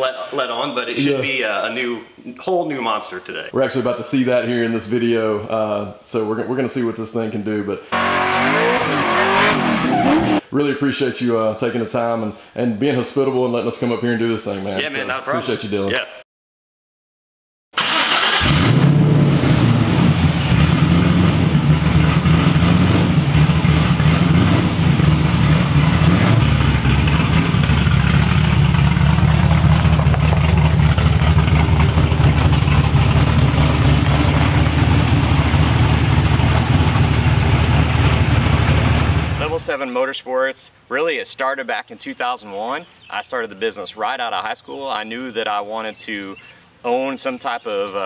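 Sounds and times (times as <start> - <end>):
vee eight engine starting and idling: 17.8 - 39.7.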